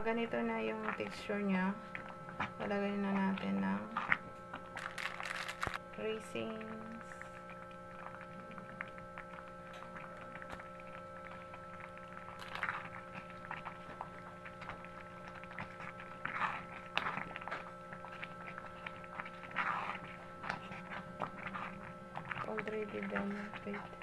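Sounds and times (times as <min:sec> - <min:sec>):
steady hum: 0:00.0 - 0:24.0
wet squelch of sticky pudding: 0:07.0 - 0:24.0.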